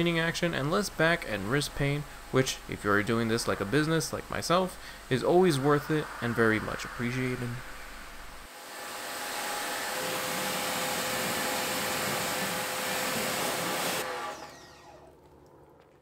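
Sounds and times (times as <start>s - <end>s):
pressure washer spraying water: 8.8s - 14.1s
pressure washer motor humming: 8.8s - 15.1s.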